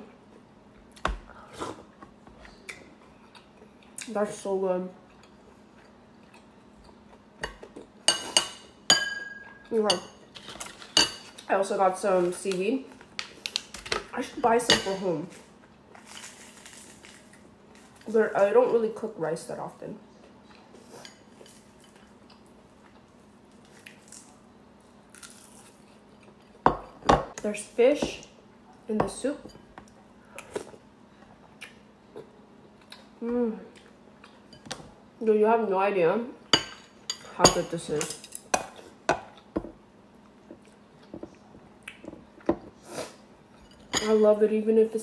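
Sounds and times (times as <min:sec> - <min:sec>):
low steady hum: 0:00.0 - 0:45.0
chewing: 0:05.0 - 0:07.9.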